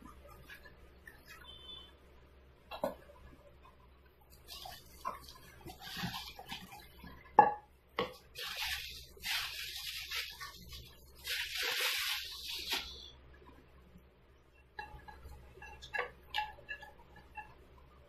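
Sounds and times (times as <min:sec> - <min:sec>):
plastic wrapping crinkling: 0:08.3 - 0:13.1.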